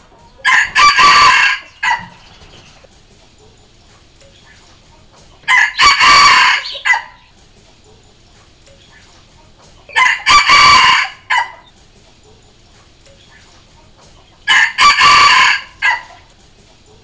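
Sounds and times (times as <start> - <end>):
rooster crowing: 0.4 - 2.4, 5.4 - 7.3, 9.9 - 11.7, 14.5 - 16.3.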